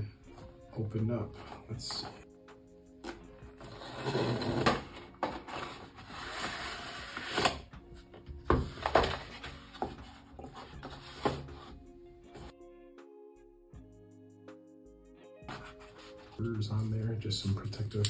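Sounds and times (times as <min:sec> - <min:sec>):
cardboard box sliding and rubbing: 0:03.6 - 0:07.6, 0:08.8 - 0:12.5.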